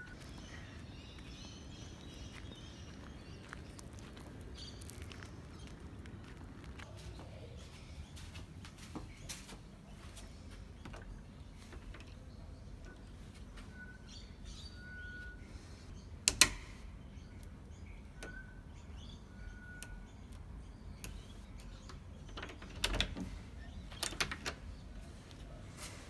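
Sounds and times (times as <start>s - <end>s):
faint bird whistles: 18.2s - 18.6s
combination lock buttons clicking: 19.8s - 24.8s.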